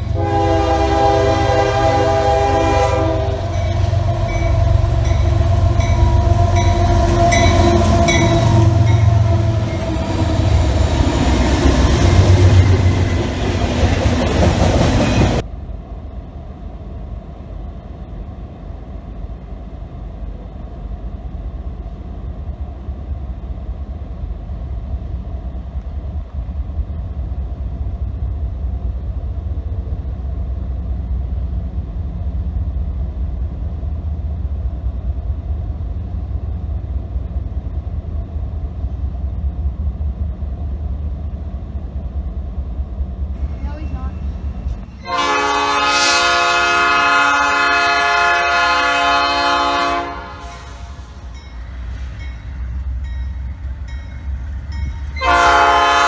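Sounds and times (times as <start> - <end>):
freight train passing: 0.0 - 56.0
low train rumble: 0.0 - 56.0
crossing bell dinging: 3.4 - 10.2, 51.3 - 55.3.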